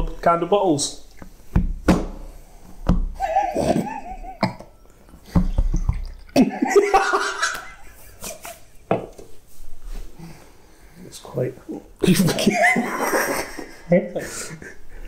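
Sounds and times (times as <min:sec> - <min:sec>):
loud laughter: 0:03.2 - 0:04.6, 0:06.4 - 0:08.6, 0:12.1 - 0:14.8.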